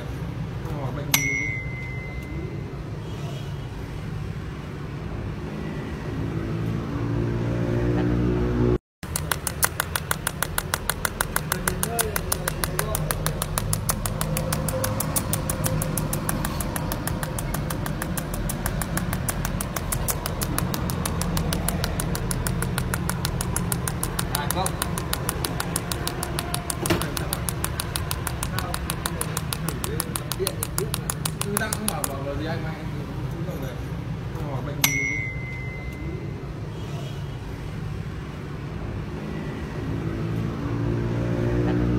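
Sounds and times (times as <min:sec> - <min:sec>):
pulsed welding arc ticking: 0:09.0 - 0:32.4.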